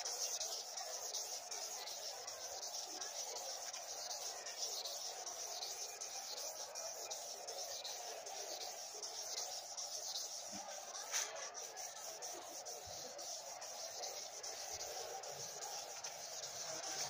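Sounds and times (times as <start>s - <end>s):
hand rubbing steel blade: 0.0s - 17.0s
steady high hiss: 0.0s - 17.0s.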